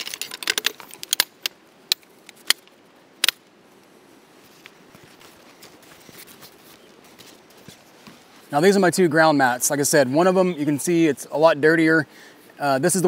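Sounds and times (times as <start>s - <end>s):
faint handling noise: 3.7s - 8.5s.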